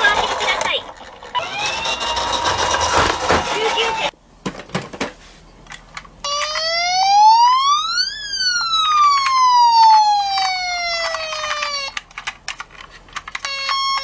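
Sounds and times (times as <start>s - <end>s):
toy electronic siren wail: 1.4s - 2.3s, 6.2s - 12.0s, 13.4s - 14.0s.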